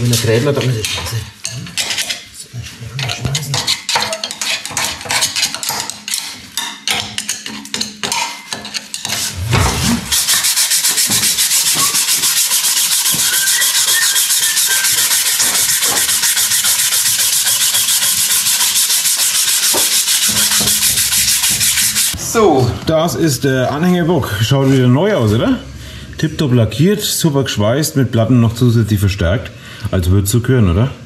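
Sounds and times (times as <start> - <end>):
tool rasping inside steel bore: 10.0 - 22.2.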